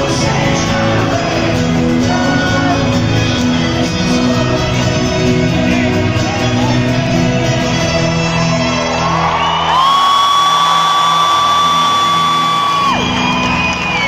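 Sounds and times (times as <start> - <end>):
band playing: 0.0 - 14.0
crowd whooping: 8.8 - 14.0
long high whoop: 9.4 - 14.0.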